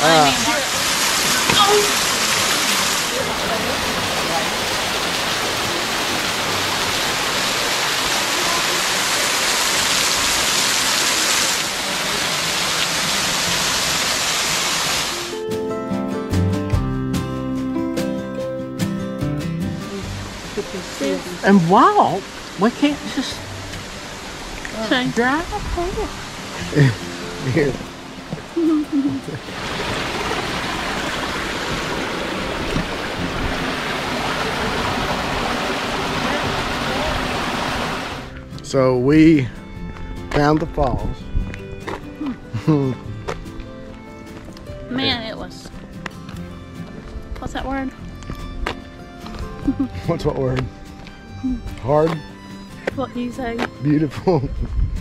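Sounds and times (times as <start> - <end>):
acoustic guitar music: 0.0 - 8.1, 13.1 - 35.6, 36.2 - 55.0
waterfall splashing: 0.0 - 15.4, 19.9 - 38.4.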